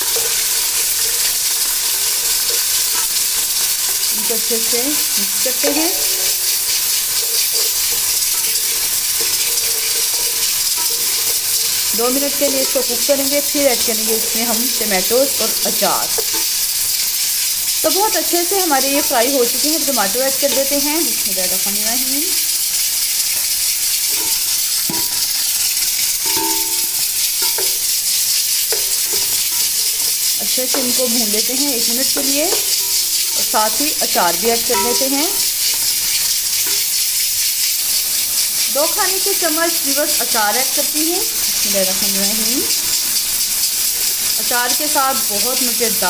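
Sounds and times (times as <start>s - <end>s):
hot oil sizzling: 0.0s - 46.0s
wooden spoon stirring in metal pot: 0.0s - 46.0s
short ringing tones: 26.2s - 27.0s.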